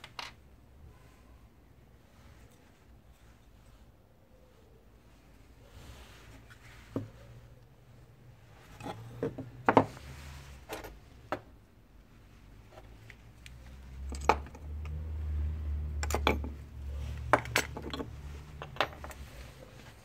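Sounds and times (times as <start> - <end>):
clinks and knocks on wooden table: 8.8 - 10.0, 14.1 - 14.6, 16.0 - 16.6, 17.3 - 19.2.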